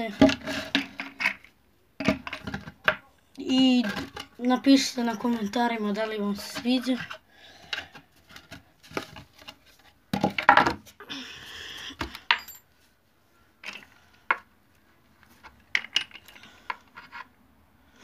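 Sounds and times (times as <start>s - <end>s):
metal nails clinking on board and concrete: 12.0s - 12.7s.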